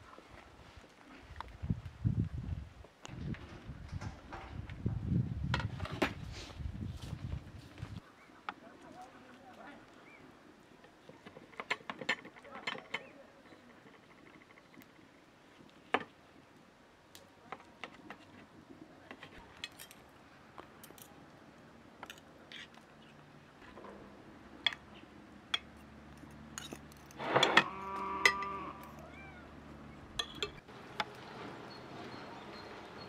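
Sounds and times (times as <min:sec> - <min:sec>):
drawn-out lowing call: 0:27.2 - 0:29.6.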